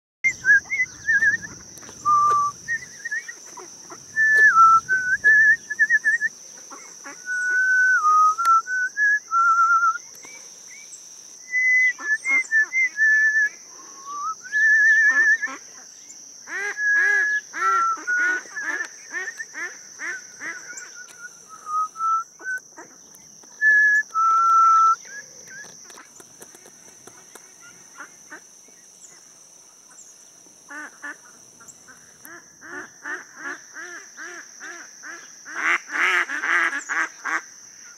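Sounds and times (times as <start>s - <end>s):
person whistling trills: 0.3s - 3.3s, 4.2s - 6.3s, 7.2s - 10.0s, 11.5s - 15.5s, 16.8s - 18.6s, 20.9s - 22.6s, 23.6s - 25.2s.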